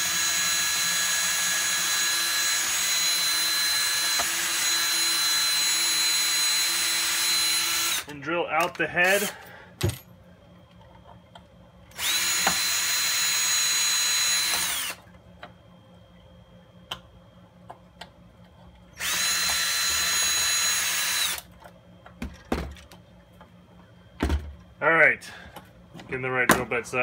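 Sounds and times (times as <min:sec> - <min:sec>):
drill whining: 0:00.0 - 0:08.1, 0:11.9 - 0:15.0, 0:19.0 - 0:21.5.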